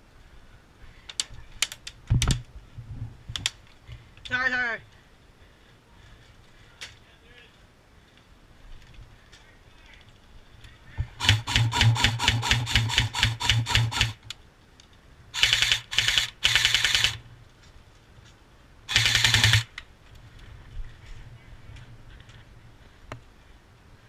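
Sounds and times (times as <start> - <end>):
airsoft rifle shots: 11.2 - 14.2, 15.4 - 17.2, 18.9 - 19.7
gun motor and gearbox hum: 18.9 - 19.7.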